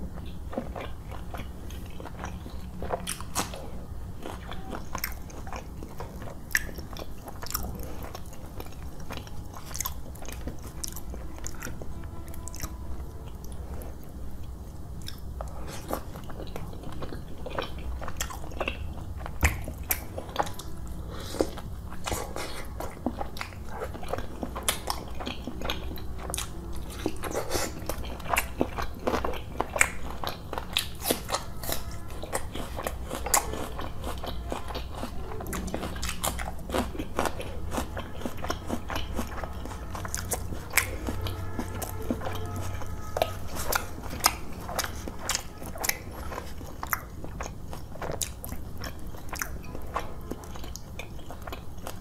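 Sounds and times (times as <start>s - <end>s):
chewing food: 0.0s - 52.0s.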